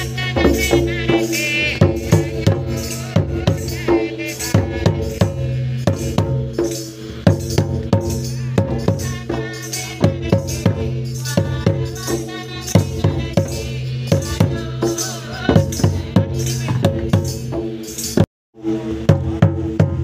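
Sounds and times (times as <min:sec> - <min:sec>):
drum struck with wooden sticks: 0:19.0 - 0:20.0.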